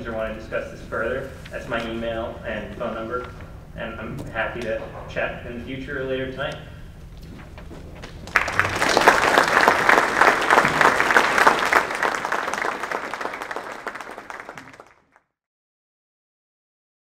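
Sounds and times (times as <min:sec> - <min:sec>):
audience applauding: 0:08.1 - 0:15.2.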